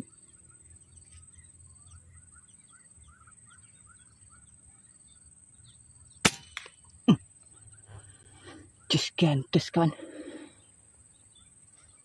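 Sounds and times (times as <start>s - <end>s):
faint bird chirps: 0.0s - 12.0s
air rifle shot crack: 6.2s - 6.7s.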